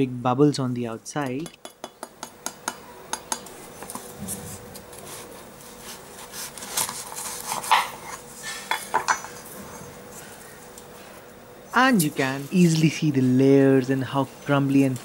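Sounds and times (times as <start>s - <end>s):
knife crunching through pastry: 5.8s - 8.3s.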